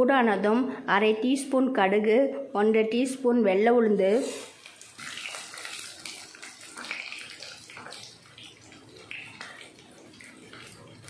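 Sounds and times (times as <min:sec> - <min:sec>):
seeds sizzling and popping in oil: 0:04.2 - 0:11.0
wooden spatula stirring in pan: 0:04.2 - 0:11.0.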